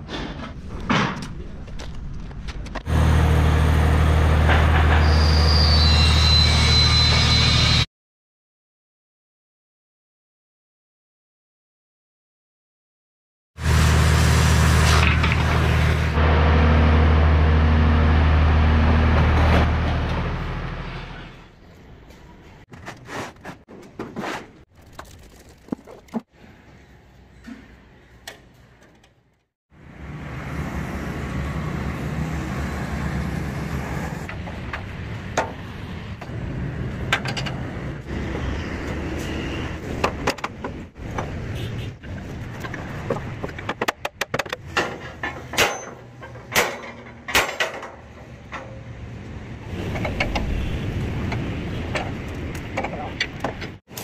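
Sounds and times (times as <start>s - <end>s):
metal knocks on steel rails: 43.1s - 48.8s
steel beams clanking: 44.6s - 49.0s.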